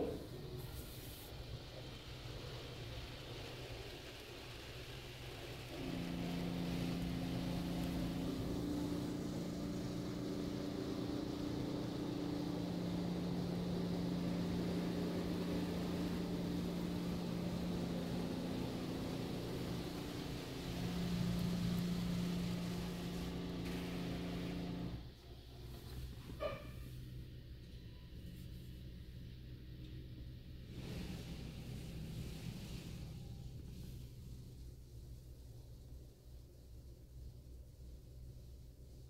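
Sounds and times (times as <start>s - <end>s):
water spray rushing on car: 0.0s - 25.0s, 30.6s - 35.4s
machine hum: 5.3s - 26.5s.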